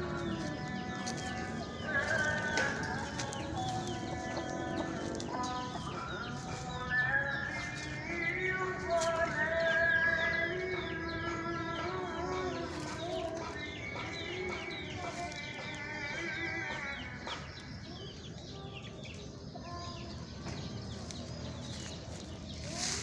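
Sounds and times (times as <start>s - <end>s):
high chick peeps: 10.4s - 23.0s.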